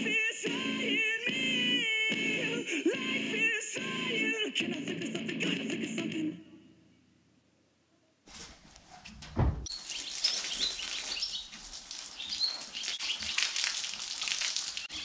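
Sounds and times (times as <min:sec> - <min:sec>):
low thud: 0:09.2 - 0:09.7
hose spraying water: 0:09.7 - 0:15.0
small birds chirping: 0:09.7 - 0:15.0.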